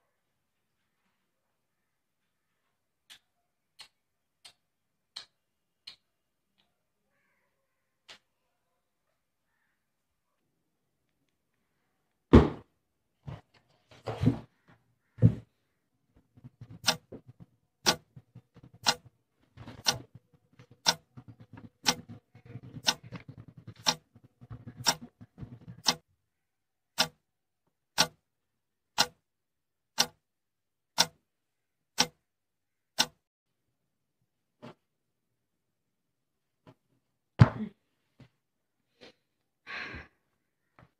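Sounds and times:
loud thumps: 0:12.3 - 0:12.7
paper and pen rustling: 0:13.2 - 0:15.5, 0:16.1 - 0:26.0
clock ticking: 0:16.4 - 0:26.0, 0:27.0 - 0:27.2, 0:28.0 - 0:28.2, 0:29.0 - 0:29.2, 0:30.0 - 0:30.2, 0:31.0 - 0:31.2, 0:32.0 - 0:32.2, 0:33.0 - 0:33.2.

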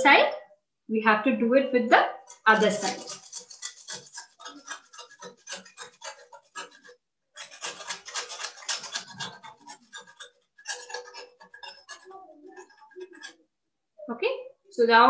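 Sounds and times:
biscuit grated on metal grater: 0:02.3 - 0:13.4.

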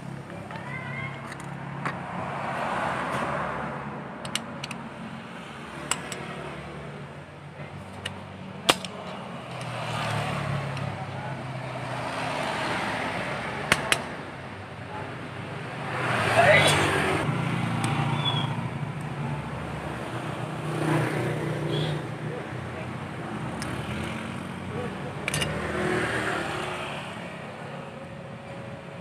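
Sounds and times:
road traffic hum: 0:00.0 - 0:29.0
metal parts clicking: 0:25.2 - 0:25.6.

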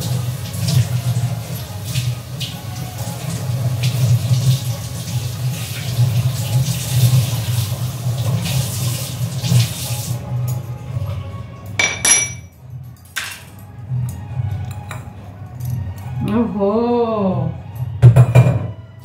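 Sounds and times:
tap water running into sink: 0:00.0 - 0:10.7
metal utensil clink: 0:11.8 - 0:13.4.

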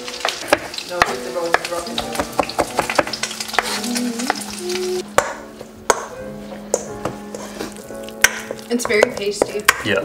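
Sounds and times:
sizzling hiss: 0:00.0 - 0:05.0
spatula scraping metal bowl: 0:06.8 - 0:09.6.

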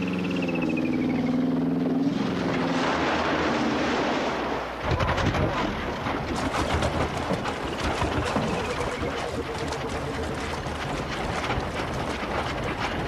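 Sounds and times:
vehicle engine running low: 0:00.0 - 0:03.8
rushing water: 0:01.0 - 0:13.0
water splashing: 0:02.0 - 0:12.2.

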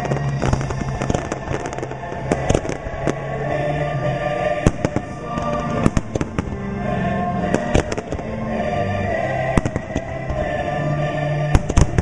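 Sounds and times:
fireworks shells bursting: 0:00.0 - 0:03.3
loud show music: 0:00.0 - 0:12.0.

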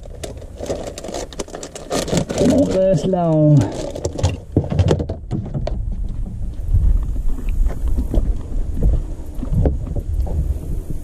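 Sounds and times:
wind rumbling on microphone: 0:00.0 - 0:11.0
plastic box clicks and knocks: 0:01.4 - 0:05.8.

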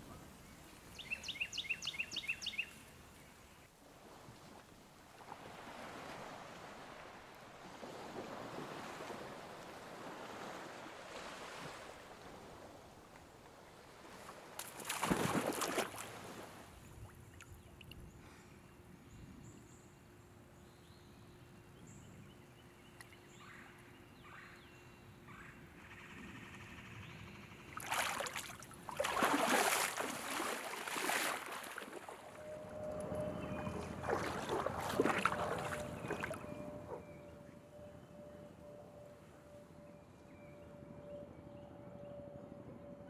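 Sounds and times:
river water splashing: 0:03.9 - 0:18.0, 0:27.7 - 0:37.2
running water: 0:27.8 - 0:36.8.

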